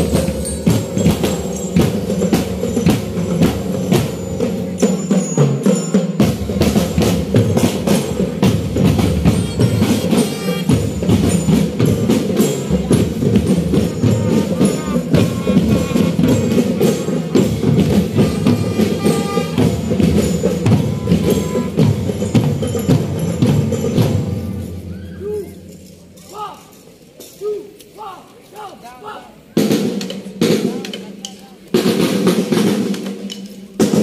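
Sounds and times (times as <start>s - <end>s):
bass drums: 0.0s - 5.1s, 6.2s - 26.2s
snare drums: 0.0s - 26.8s, 28.0s - 34.0s.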